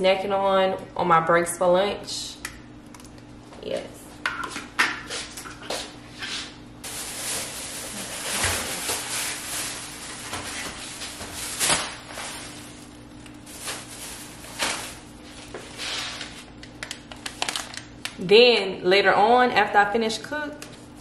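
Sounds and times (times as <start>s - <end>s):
faint steady hum: 0.0s - 21.0s
rustling of packages: 6.8s - 17.9s.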